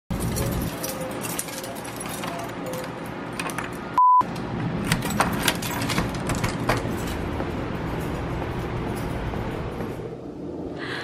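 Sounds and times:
keys jingling: 0.1s - 4.0s, 4.8s - 10.2s
high beep: 4.0s - 4.2s.

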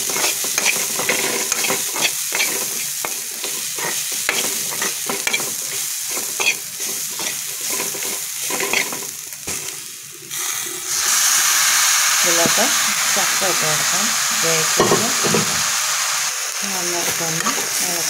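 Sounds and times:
spoon scraping frying pan: 0.0s - 9.8s, 17.0s - 18.0s
hot oil sizzling: 0.0s - 18.0s.

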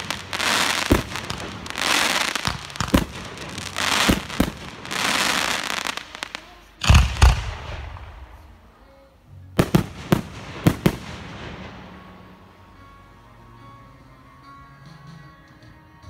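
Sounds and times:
crackling hiss: 0.0s - 13.1s
sharp firework bangs: 6.8s - 8.4s
heavy firework booms: 6.8s - 8.5s.

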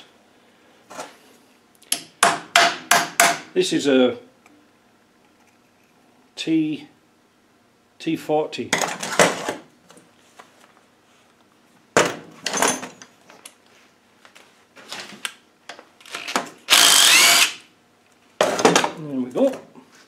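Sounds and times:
tools clattering on a bench: 12.0s - 13.5s
cordless drill whining: 16.0s - 17.6s.

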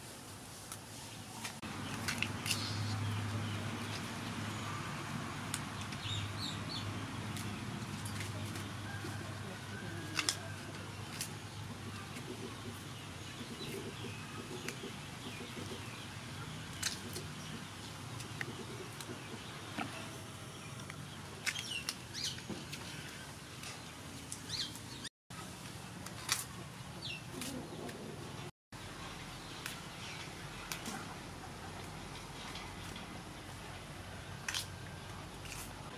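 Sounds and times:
flowers snapping off stalks: 10.1s - 10.4s, 26.0s - 26.5s, 30.6s - 31.0s, 34.4s - 34.7s.

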